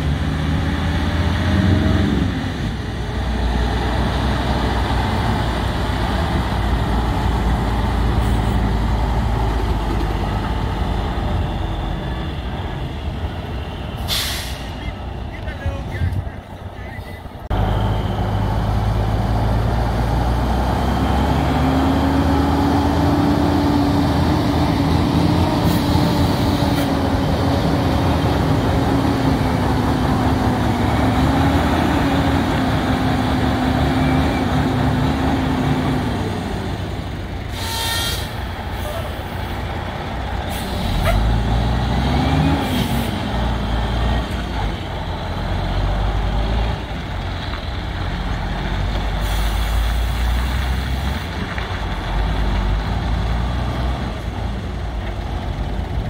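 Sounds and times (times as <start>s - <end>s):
diesel truck engine pulling away: 0.0s - 56.0s
air brake hisses: 14.0s - 14.9s, 40.5s - 41.2s.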